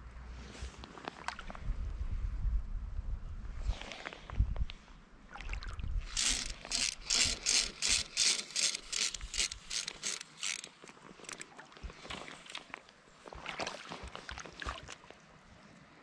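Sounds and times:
fly reel ratchet chattering: 6.1s - 11.4s.

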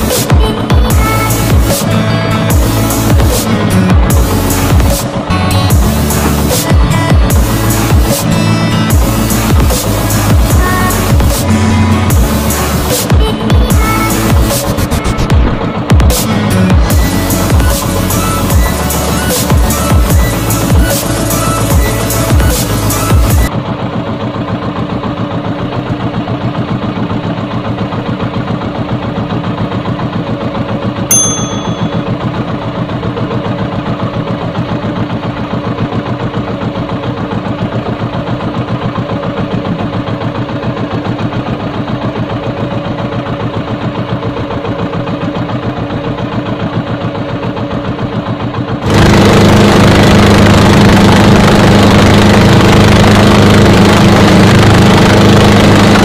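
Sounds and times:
boat engine puttering: 28.1s - 56.0s
brief high ping: 31.1s - 32.3s.

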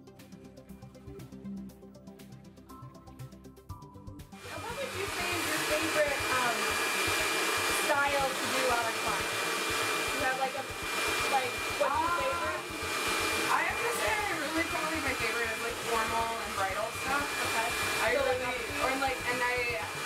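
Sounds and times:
hair dryer blowing: 4.4s - 20.0s.

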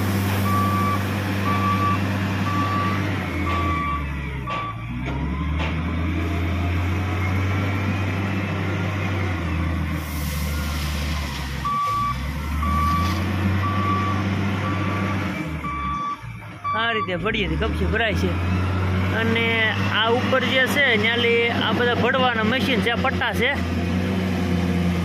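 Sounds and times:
diesel engine revving: 0.0s - 25.0s
reversing alarm beeping: 0.4s - 6.4s, 10.1s - 17.3s.

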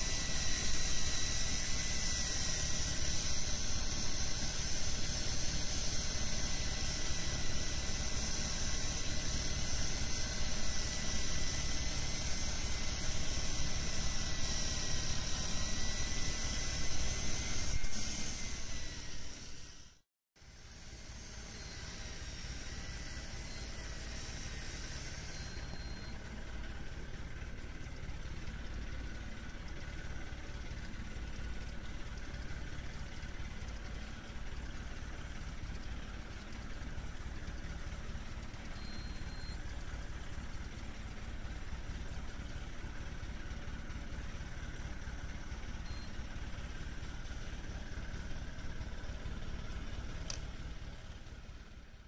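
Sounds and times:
boat engine idling: 26.2s - 38.7s.

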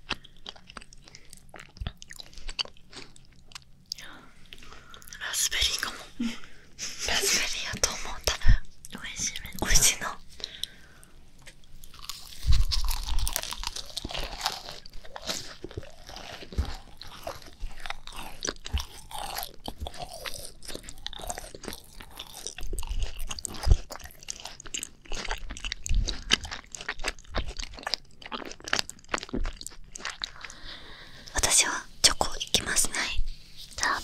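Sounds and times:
chewing with crackles: 0.0s - 5.2s, 10.4s - 32.8s
crunch of biting crisp shells: 11.4s - 30.7s.

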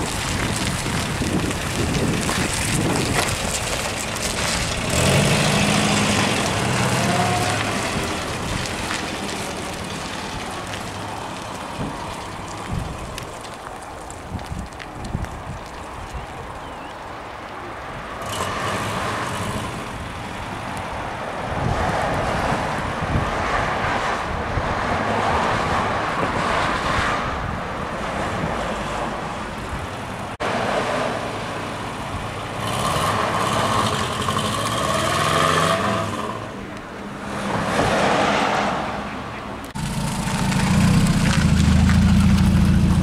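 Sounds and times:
car engine idling and revving: 0.0s - 13.1s, 28.5s - 37.8s, 39.6s - 43.0s
passing traffic: 0.0s - 43.0s.

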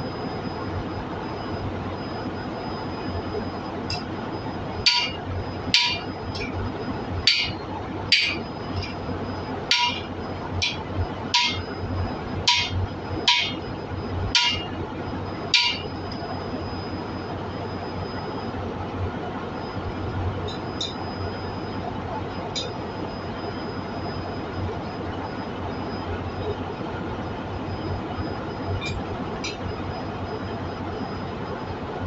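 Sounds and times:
hammer striking steel driver: 4.9s - 5.2s, 5.8s - 6.5s, 7.3s - 8.4s, 9.7s - 10.8s, 11.4s - 11.6s, 12.5s - 13.6s, 14.4s - 14.7s, 15.6s - 15.8s.

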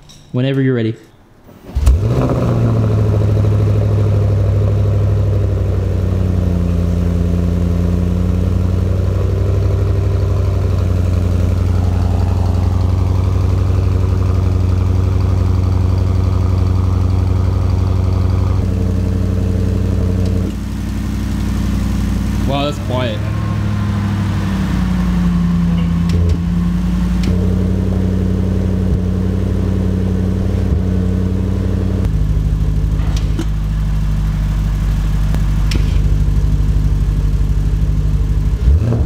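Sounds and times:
car engine starting and idling: 1.5s - 39.0s.

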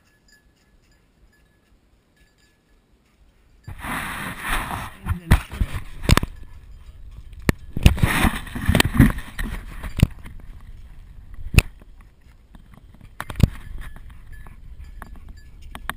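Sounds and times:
rubbing and rustling: 3.7s - 6.3s, 7.8s - 10.5s.

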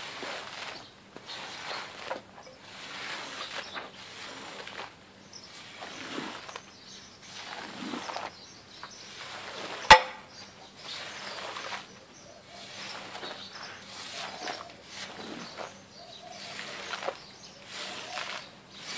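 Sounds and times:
squeegee swishing through wet carpet: 0.0s - 8.4s, 9.1s - 9.9s, 10.8s - 18.9s
sharp knock: 9.9s - 10.2s.

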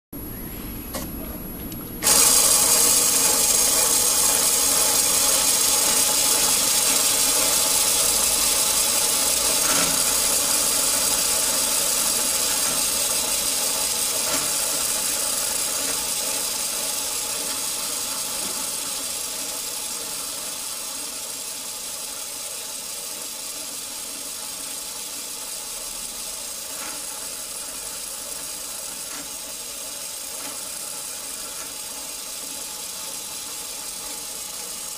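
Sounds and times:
electric motor whirring: 0.6s - 34.9s
plastic gears meshing: 2.0s - 25.4s.

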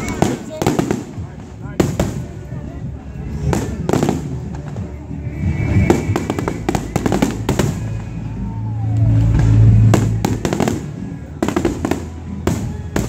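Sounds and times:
firework bangs and crackling: 0.0s - 13.0s
deep firework boom: 3.5s - 13.0s.

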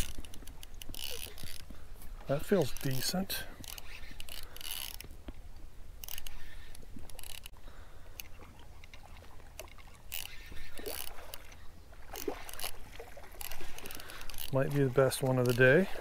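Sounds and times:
faint clicks: 0.0s - 12.8s
waves lapping at shore: 8.0s - 16.0s.

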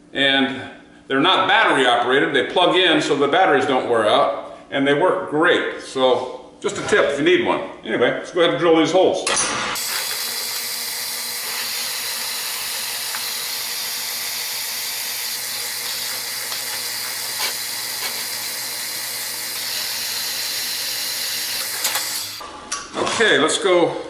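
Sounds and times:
drill press cutting steel: 9.5s - 22.4s.

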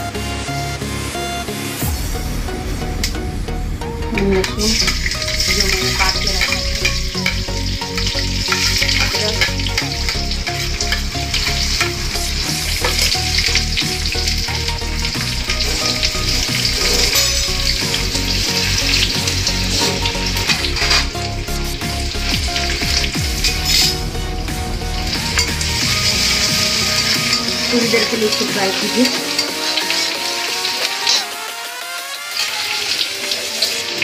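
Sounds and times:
garlic sizzling in hot oil: 1.8s - 34.0s.

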